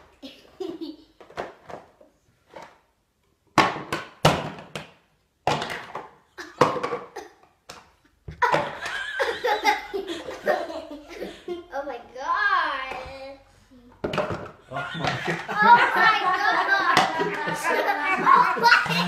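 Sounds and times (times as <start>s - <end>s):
people laughing: 8.7s - 11.6s, 14.7s - 19.0s.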